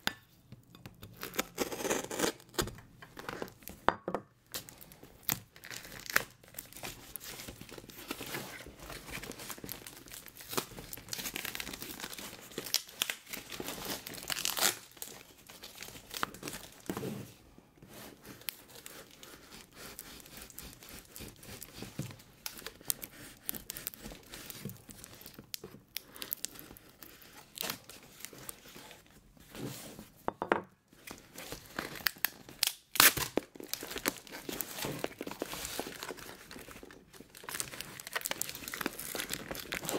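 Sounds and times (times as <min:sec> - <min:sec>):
packing tape tearing: 0:01.2 - 0:03.6, 0:09.0 - 0:16.9, 0:31.6 - 0:39.9.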